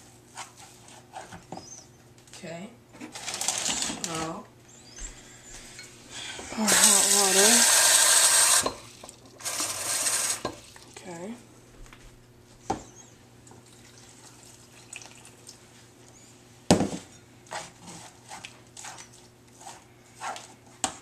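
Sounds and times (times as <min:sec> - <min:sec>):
kitchen faucet running: 0:06.6 - 0:10.8
spatula scraping thick paste: 0:17.5 - 0:20.6.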